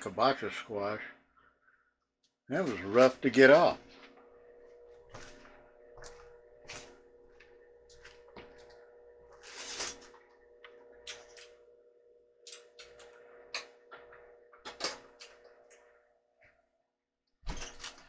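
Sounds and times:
microwave oven humming: 2.5s - 16.3s.

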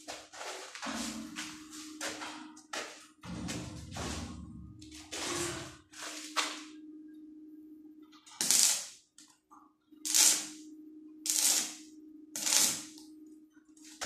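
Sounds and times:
steady low hum: 0.0s - 14.0s
welding arc hiss: 8.4s - 9.0s, 10.1s - 10.6s, 11.3s - 13.0s.

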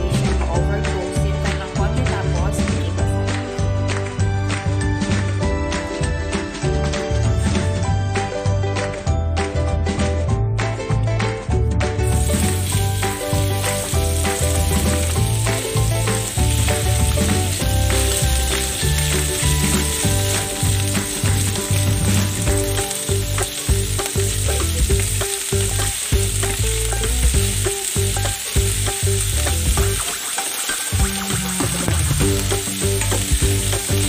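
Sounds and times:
meat sizzling in oil: 12.0s - 34.0s.

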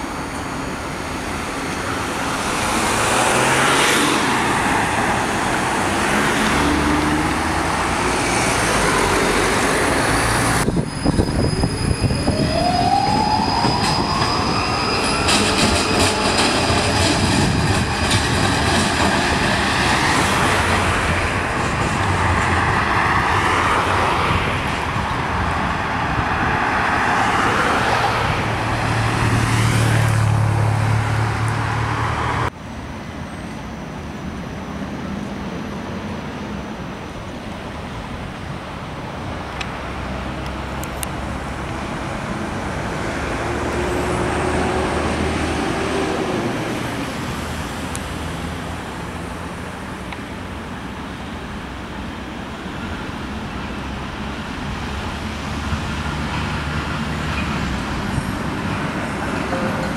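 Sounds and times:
tram wheels rumbling on rails: 0.0s - 32.5s, 33.1s - 59.9s
road traffic engine hum: 0.0s - 59.9s
tram motors whining: 9.9s - 22.6s.

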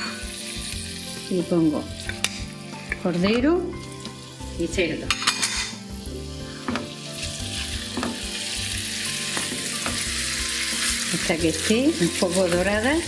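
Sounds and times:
meat sizzling in hot oil: 0.0s - 13.0s.

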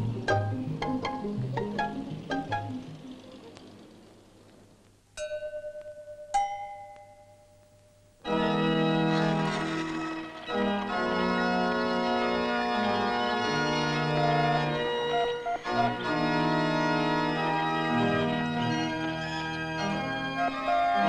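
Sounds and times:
organ music with held chords: 0.0s - 4.5s, 8.0s - 21.0s
bell-like tones: 5.2s - 8.1s.

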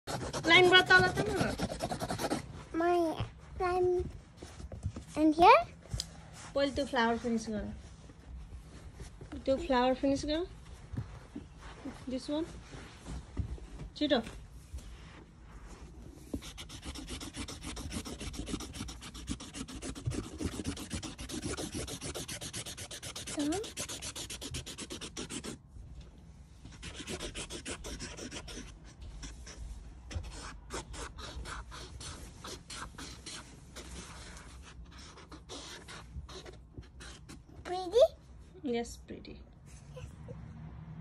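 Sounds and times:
marker scribbling on paper: 0.0s - 2.5s, 16.3s - 25.6s, 26.7s - 37.7s.

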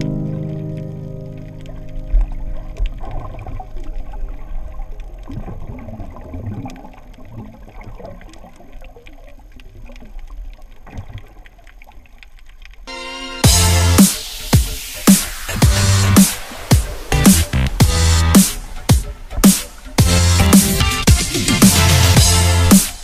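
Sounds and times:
underwater bubbling gurgles: 0.0s - 12.8s
loud electronic music: 12.9s - 23.0s.

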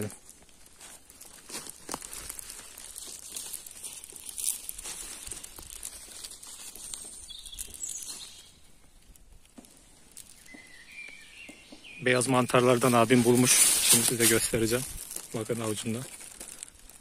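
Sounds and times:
footsteps on dry leaves: 0.0s - 17.0s
bird chirping: 6.7s - 9.0s, 10.3s - 13.4s.

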